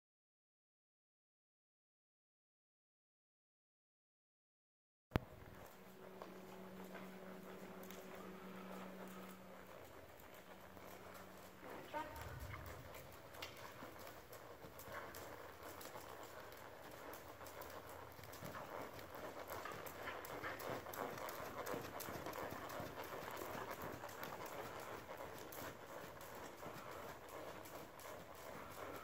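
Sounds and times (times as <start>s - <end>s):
horse hoofbeats trotting on sand: 5.2s - 29.0s.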